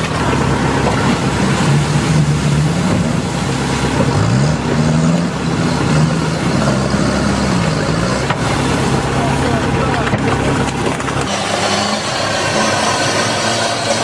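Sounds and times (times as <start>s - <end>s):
diesel engine under load: 0.0s - 14.0s
rushing noise: 0.0s - 14.0s.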